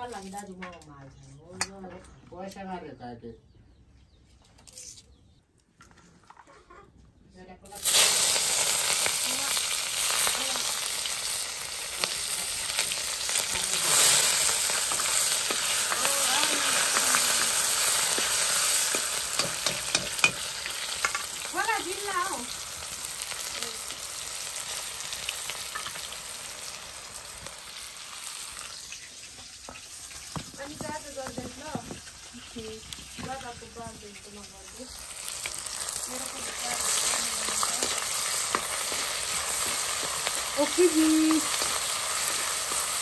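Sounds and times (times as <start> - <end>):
vegetables sizzling in oil: 7.7 - 43.0
ladle scraping and knocking wok: 13.6 - 21.4.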